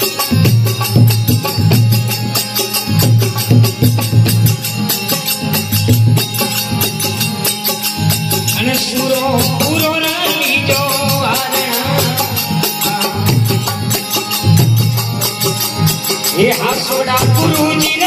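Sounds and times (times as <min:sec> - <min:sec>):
jingling hand percussion: 0:00.0 - 0:18.0
person singing: 0:16.4 - 0:18.0.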